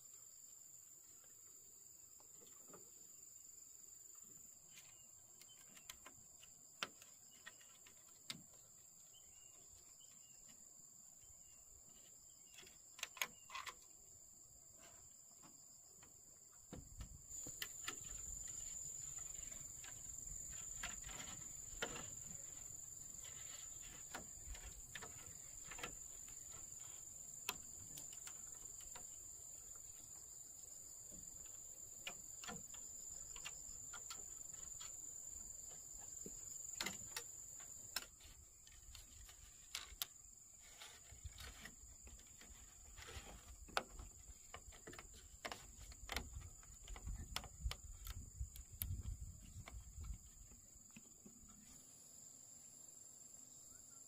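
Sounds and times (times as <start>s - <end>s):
insects droning: 0.0s - 54.0s
sharp clicks and knocks: 16.7s - 30.2s, 31.1s - 35.0s, 35.6s - 40.2s, 40.8s - 51.4s.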